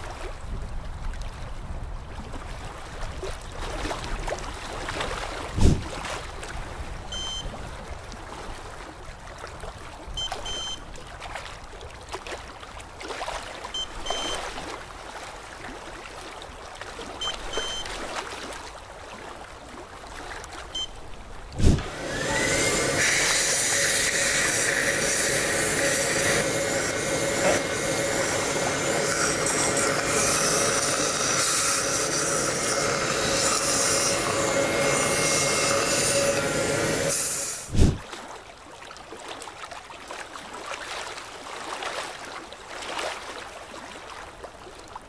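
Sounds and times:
curing light beeping: 0:07.1 - 0:07.5, 0:10.2 - 0:10.8, 0:13.8 - 0:14.4, 0:17.2 - 0:17.9
watery hiss: 0:21.6 - 0:38.0.

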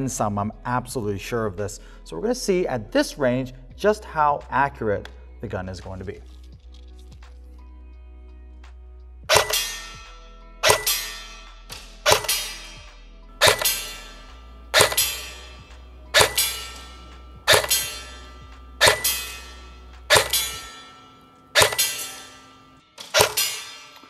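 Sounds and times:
background music: 0:00.0 - 0:24.0
airsoft gun shots cracking: 0:09.3 - 0:09.9, 0:10.6 - 0:11.3, 0:12.0 - 0:12.6, 0:13.4 - 0:18.2, 0:18.8 - 0:19.5, 0:20.1 - 0:20.8, 0:21.6 - 0:22.4, 0:23.1 - 0:23.7.

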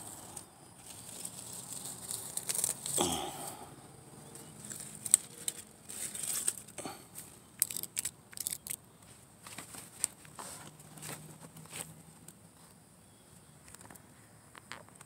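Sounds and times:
lettuce rustling and snapping: 0:00.0 - 0:03.6, 0:04.4 - 0:08.8.

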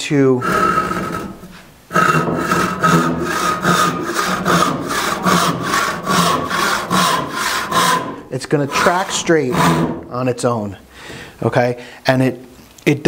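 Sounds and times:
hand saw cutting board: 0:00.4 - 0:10.2.

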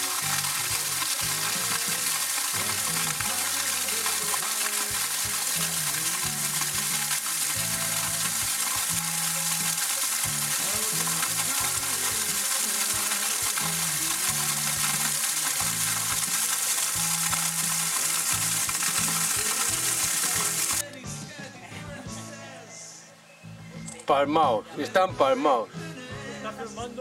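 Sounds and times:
small waterfall splashing on rock: 0:00.0 - 0:20.9.

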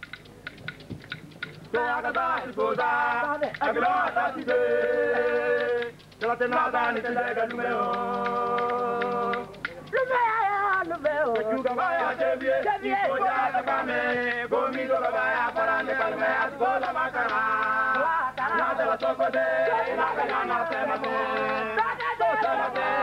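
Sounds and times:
voices singing without instruments: 0:01.4 - 0:23.0.

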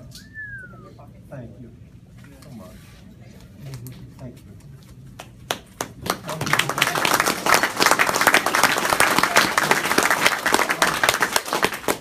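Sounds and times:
people applauding: 0:05.2 - 0:12.0.

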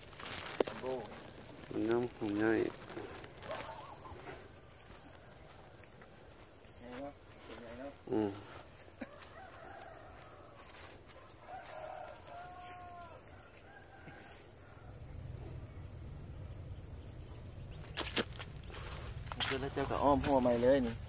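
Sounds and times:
rooster crowing: 0:08.8 - 0:15.2.

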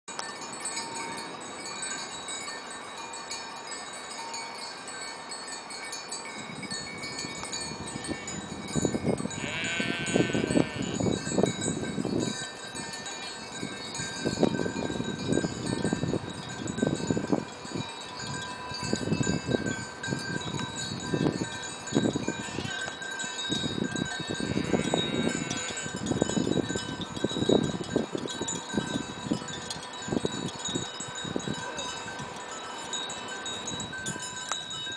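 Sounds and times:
goat bells tinkling: 0:00.1 - 0:34.9
wind rumbling on microphone: 0:06.2 - 0:34.9
goat bleating: 0:09.4 - 0:11.0.

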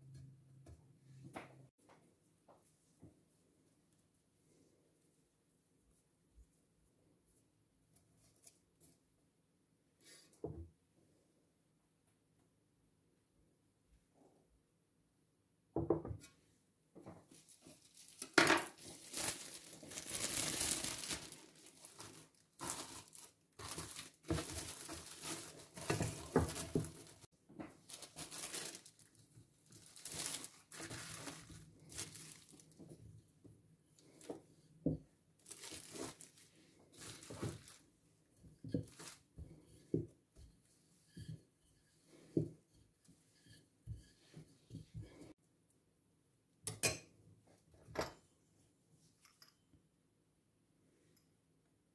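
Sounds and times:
cling film crinkling and tearing: 0:17.6 - 0:32.8, 0:35.4 - 0:36.4.

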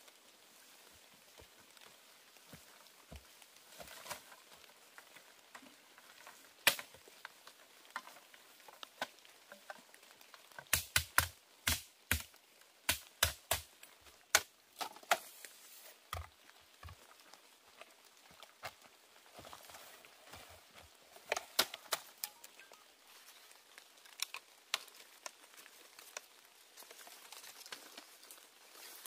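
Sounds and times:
leaves rustling: 0:00.0 - 0:29.0.

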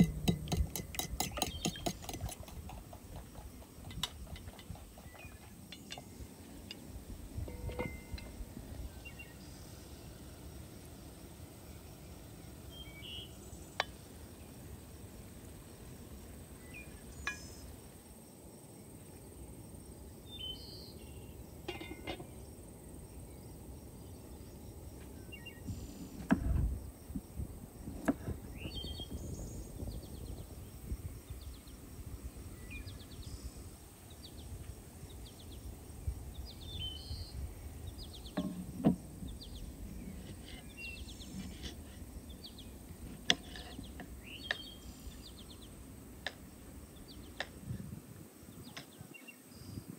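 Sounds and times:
knocks and clicks of kitchen work: 0:00.0 - 0:05.0
small birds chirping: 0:00.0 - 0:17.8, 0:20.0 - 0:27.2, 0:28.1 - 0:49.9
steady low background noise: 0:00.0 - 0:49.9.

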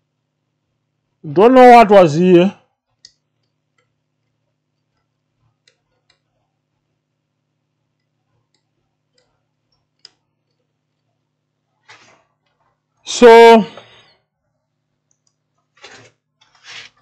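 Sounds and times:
faint clicks: 0:02.9 - 0:06.3, 0:07.9 - 0:11.1, 0:15.0 - 0:16.6.

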